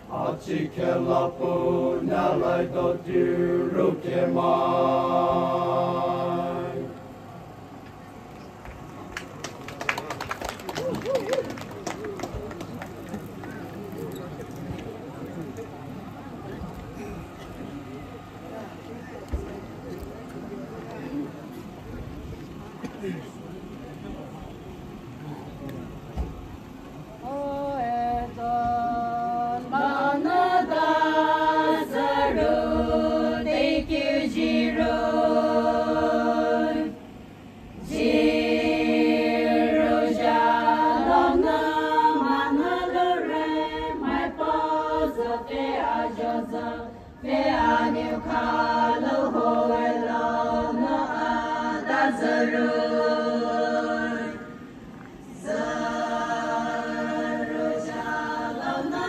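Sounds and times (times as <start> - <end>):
group singing unaccompanied: 0.0 - 7.3, 27.2 - 59.0.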